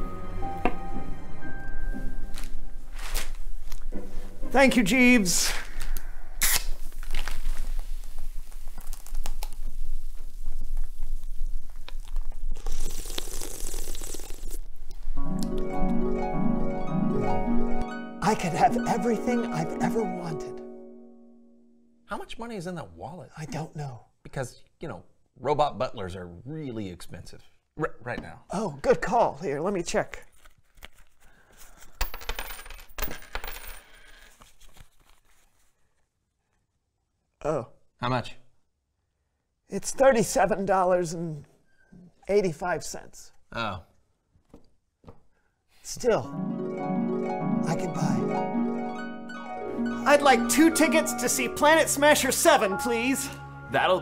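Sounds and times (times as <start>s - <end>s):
wallet and paper bills rustling: 2.4s - 3.7s, 6.6s - 10.8s, 30.2s - 32.6s, 33.5s - 36.0s
drink fizzing: 12.2s - 14.8s
coins clinking on wooden table: 31.8s - 34.4s.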